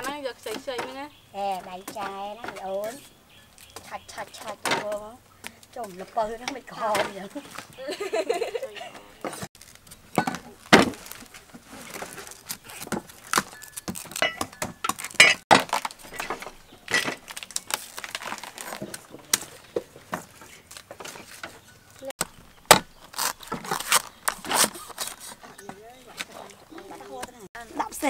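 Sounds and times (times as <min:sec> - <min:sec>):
stem layers tearing apart: 0:09.6 - 0:14.3, 0:14.9 - 0:19.6, 0:20.6 - 0:27.1
cleaver chopping palm stem on wood: 0:22.2 - 0:24.8.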